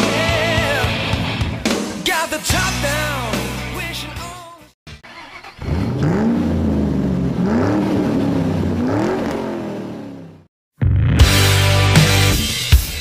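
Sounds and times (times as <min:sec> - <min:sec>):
engine revving: 0:04.9 - 0:10.5.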